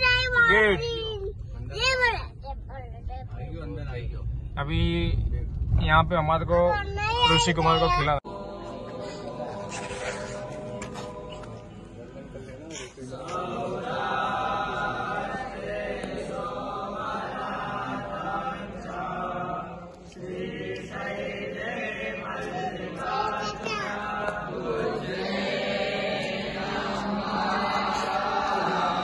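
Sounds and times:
group chanting in unison: 8.2s - 12.3s, 13.0s - 29.0s.

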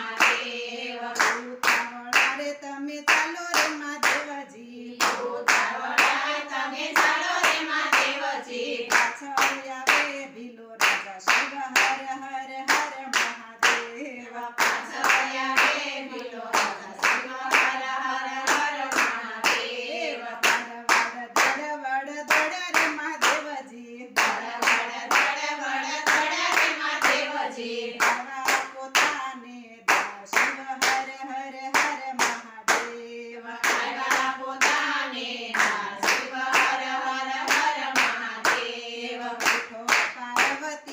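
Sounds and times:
women singing in unison: 0.0s - 40.9s
hand claps: 0.2s - 0.5s, 1.2s - 2.5s, 3.1s - 4.3s, 5.0s - 6.3s, 7.0s - 8.2s, 8.9s - 10.2s, 10.8s - 14.0s, 14.6s - 17.8s, 18.4s - 19.7s, 20.4s - 21.7s, 22.3s - 23.5s, 24.2s - 25.4s, 26.0s - 27.3s, 28.0s - 29.2s, 29.9s - 31.1s, 31.7s - 33.0s, 33.6s - 34.9s, 35.5s - 38.7s, 39.4s - 40.9s.

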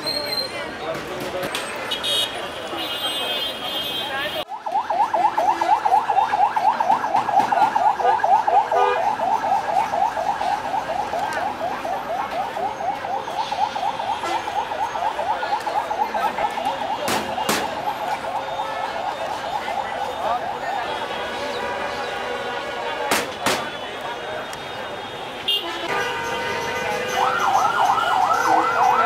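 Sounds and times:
electronic siren yelping: 4.5s - 20.8s, 26.5s - 29.0s.

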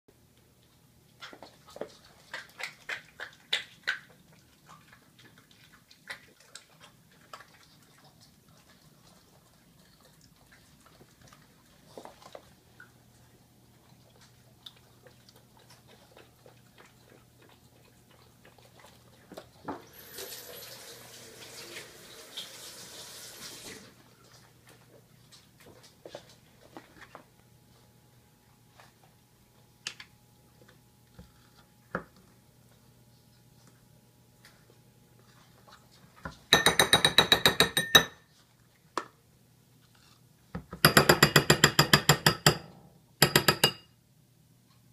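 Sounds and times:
kitchen tap running into sink: 19.8s - 24.0s
spoon and bowls clicking: 36.6s - 38.2s, 43.2s - 43.9s.

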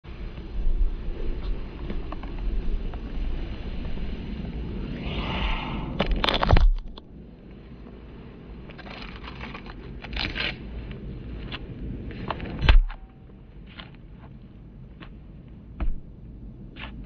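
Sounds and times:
loud thump: 15.8s - 16.1s.

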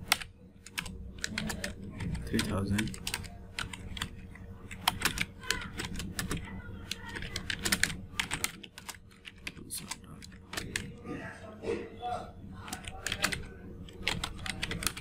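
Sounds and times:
computer keyboard typing: 0.0s - 11.0s, 12.6s - 15.0s.

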